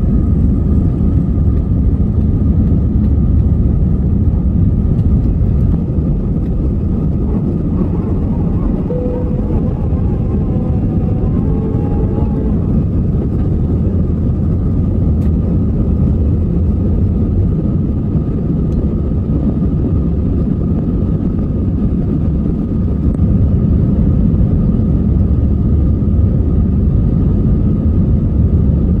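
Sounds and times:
airplane cabin engine rumble: 0.0 - 29.0
faint high steady tone: 7.8 - 13.3.

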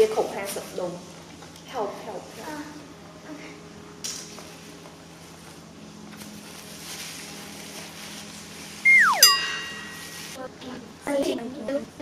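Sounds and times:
descending whistle sound effect: 8.9 - 10.2
ringing tone: 8.9 - 10.2.

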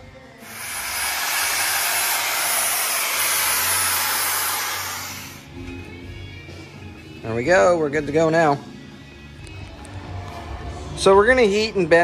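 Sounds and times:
power grinder grinding metal: 0.4 - 5.4.

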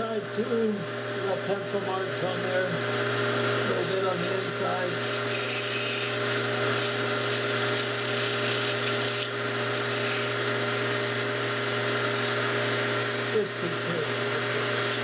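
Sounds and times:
steady machine hum: 0.0 - 15.0
sandpaper rubbing on wood: 3.8 - 10.4.

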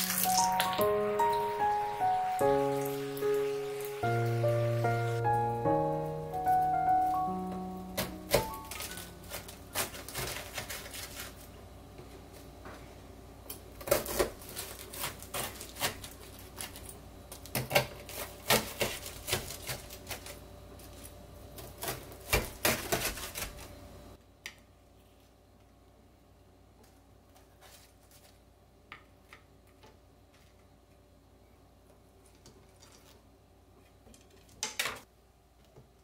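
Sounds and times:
knife cutting crunchy crust: 8.0 - 11.4, 13.8 - 16.8, 17.5 - 20.4, 21.6 - 23.7.

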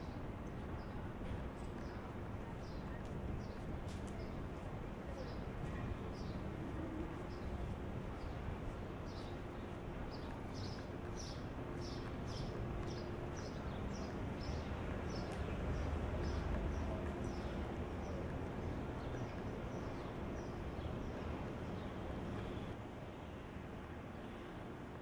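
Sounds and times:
city traffic rumble: 0.0 - 25.0.

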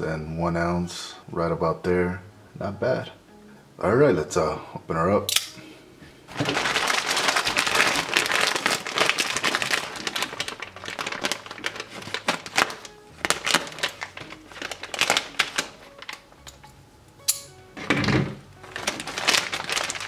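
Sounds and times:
plastic bag crinkling: 6.3 - 16.4, 18.6 - 20.0.

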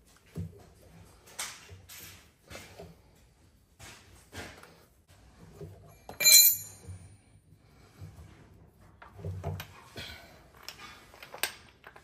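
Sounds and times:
steel knocks and clinks: 6.1 - 6.8
sharp metallic clank with ringing: 6.2 - 6.8.

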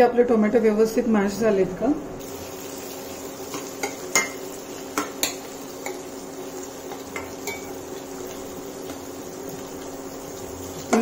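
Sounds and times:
faint sizzle: 0.0 - 11.0
metal clinking on pan: 3.5 - 6.0, 6.9 - 7.8.

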